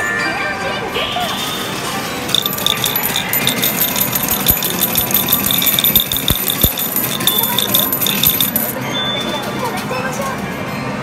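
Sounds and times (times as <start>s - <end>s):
metal medals clinking: 2.3s - 8.8s.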